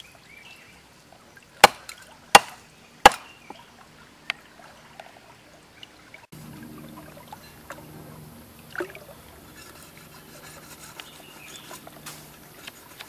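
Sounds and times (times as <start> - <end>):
stream trickling: 0.0 - 13.0
knife scraping fish: 9.5 - 13.0.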